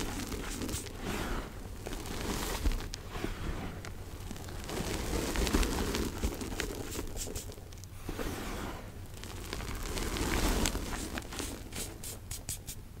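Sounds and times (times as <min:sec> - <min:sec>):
chalk crunching in hands: 0:00.0 - 0:01.0, 0:06.1 - 0:07.6, 0:09.4 - 0:12.8.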